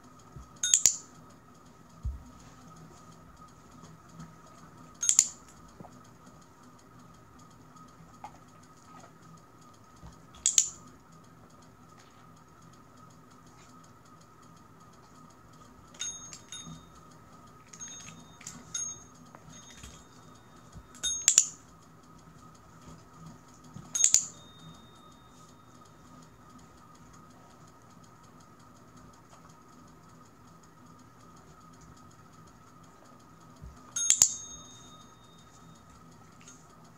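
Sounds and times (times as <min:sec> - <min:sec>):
light taps on bell: 0:00.6 - 0:01.1, 0:23.9 - 0:25.6, 0:34.0 - 0:35.8
service bell dings: 0:16.0 - 0:17.0, 0:17.8 - 0:21.5, 0:34.0 - 0:35.8.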